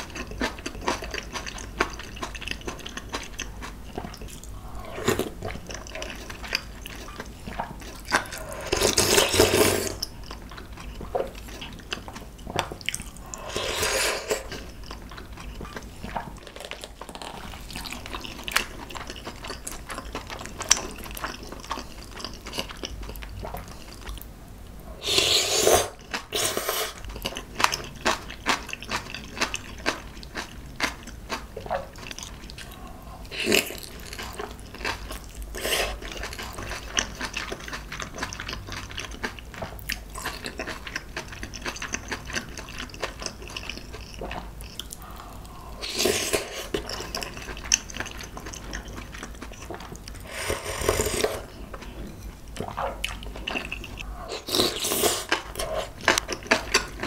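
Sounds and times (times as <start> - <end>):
noodle slurps: 25.0 - 27.0, 50.2 - 51.5
wet chewing: 33.5 - 57.0.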